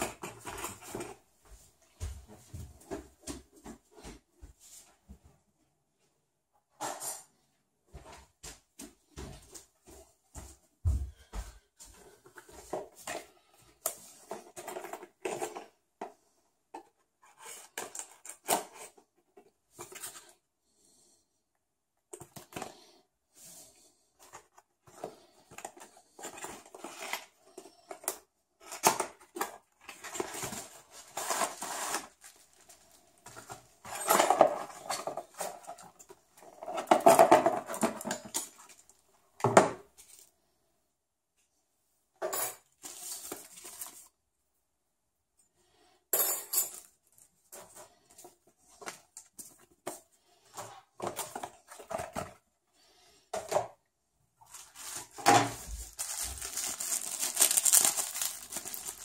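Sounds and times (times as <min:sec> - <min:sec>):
cardboard box being unpacked: 0:28.6 - 0:35.8, 0:54.5 - 0:59.0.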